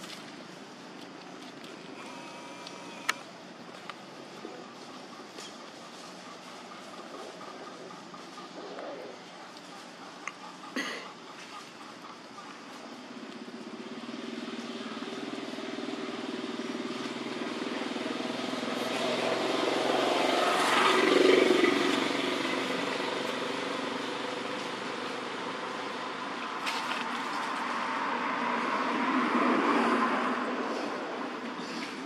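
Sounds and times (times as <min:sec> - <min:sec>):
vehicle engine passing by: 0:12.8 - 0:32.0.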